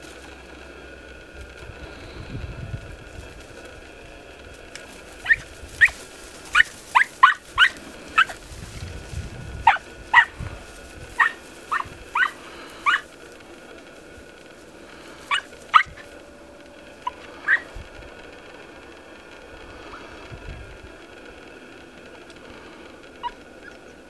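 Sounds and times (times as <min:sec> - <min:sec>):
dogs yelping: 0:04.8 - 0:20.4, 0:22.2 - 0:24.0.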